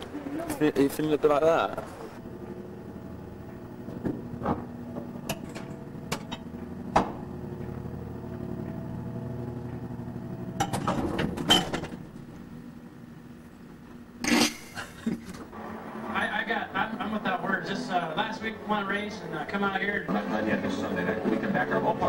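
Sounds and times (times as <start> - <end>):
lift machine hum: 0.0 - 14.2.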